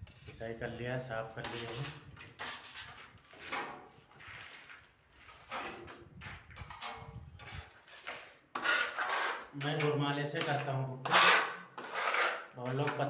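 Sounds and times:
trowel scraping and knocking: 1.4s - 13.0s.

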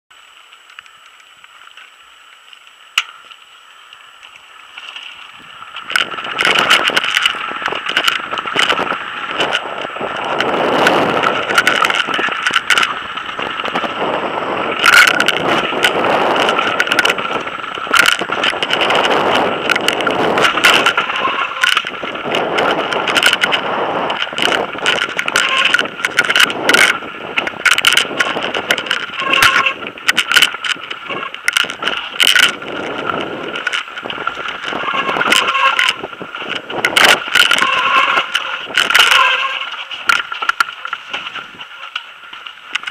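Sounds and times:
bike tyres on stony ground: 0.1s - 42.9s
bike knocking and rattling: 0.2s - 42.9s
wind noise: 4.0s - 42.9s.

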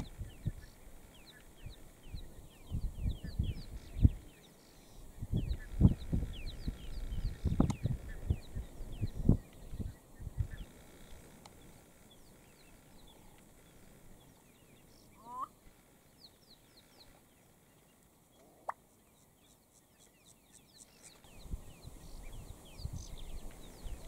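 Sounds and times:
bird wavering croak: 15.1s - 15.6s.

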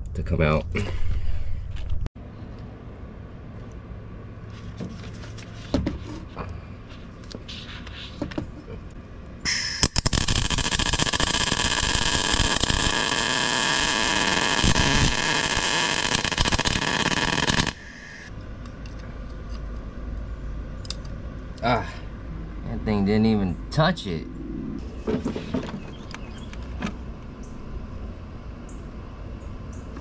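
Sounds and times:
welder arc buzzing: 9.5s - 18.3s.

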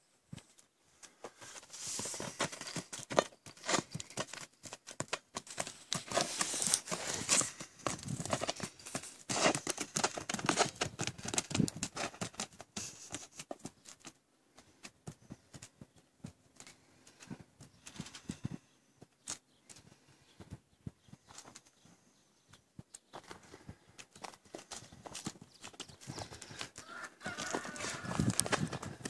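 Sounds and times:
hooves crunching on gravel: 1.2s - 13.9s, 23.1s - 29.0s.

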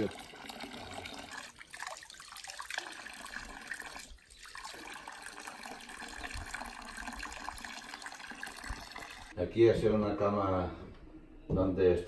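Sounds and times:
water trickling into stone trough: 0.0s - 9.4s.

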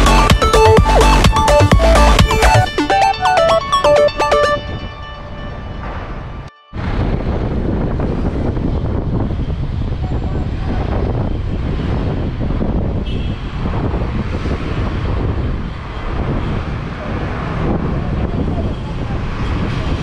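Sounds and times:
street traffic: 0.0s - 20.0s
wind buffeting microphone: 5.7s - 20.0s.

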